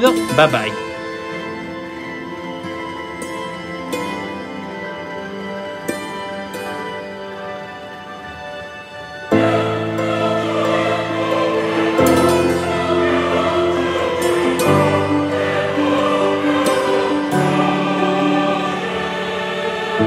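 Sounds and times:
slow sustained chords music: 0.0s - 20.0s.

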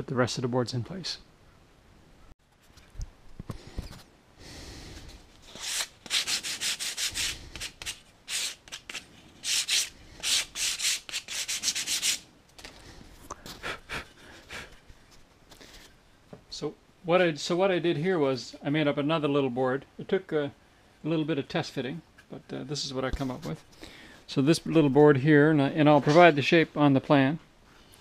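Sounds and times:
soft rubs and handling: 14.3s - 16.0s.

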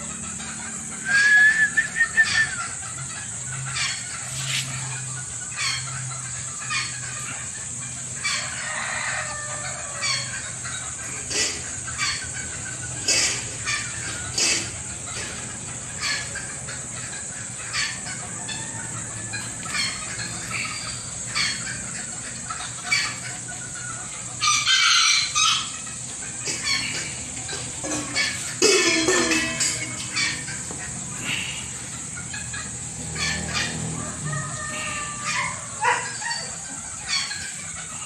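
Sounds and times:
chicken clucks: 0.0s - 38.0s
rooster crowing: 8.2s - 10.4s, 24.4s - 25.7s, 33.0s - 36.5s.

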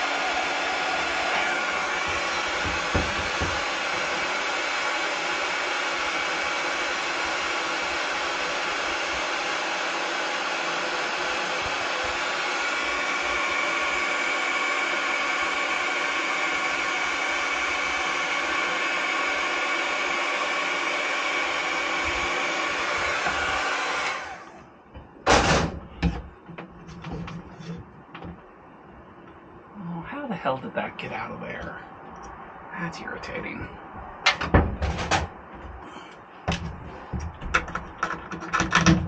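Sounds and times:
butane torch hissing: 0.0s - 24.5s.

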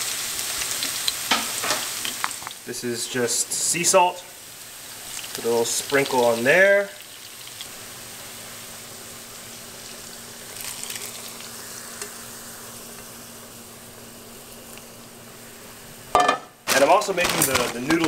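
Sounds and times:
hot oil poured and crackling: 0.0s - 18.0s
onions sizzling in hot oil: 0.0s - 18.0s.

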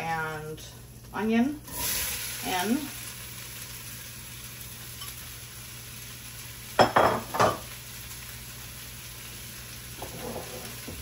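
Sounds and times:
vegetables sizzling in oil: 0.0s - 11.0s
utensil scraping pan: 10.0s - 10.9s.

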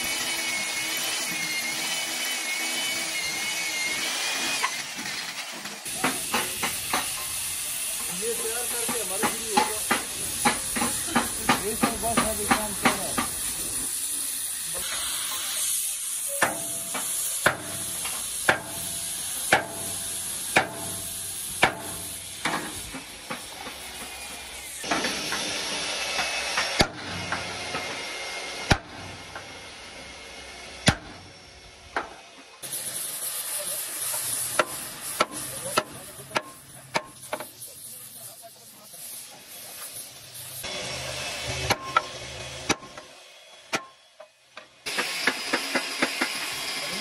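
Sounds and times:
gas torch hissing: 5.8s - 31.6s, 32.6s - 42.0s
sledgehammer striking steel: 16.3s - 24.1s, 30.8s - 31.2s, 41.4s - 43.0s.

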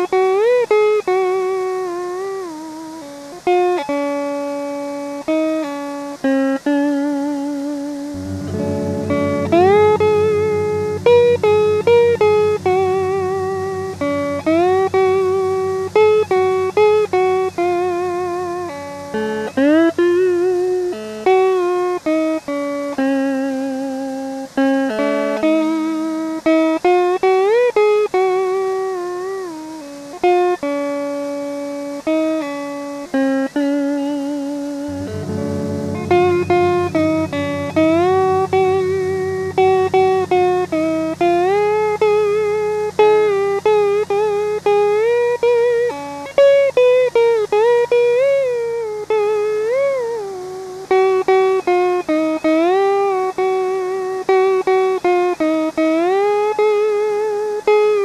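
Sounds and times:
low sustained bass: 8.1s - 21.6s, 34.9s - 48.6s
plucked melody with slides: 8.1s - 23.6s, 33.1s - 55.0s.

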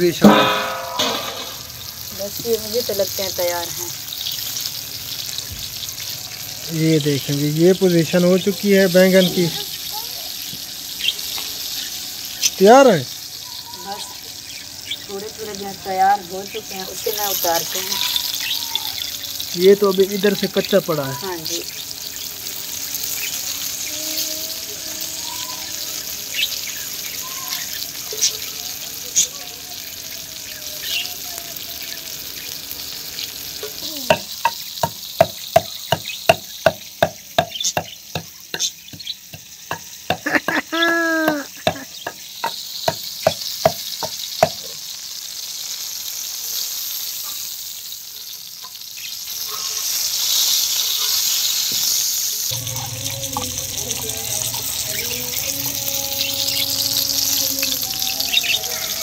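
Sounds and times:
oil sizzling: 0.0s - 59.0s
pestle pounding in mortar: 34.1s - 40.2s.

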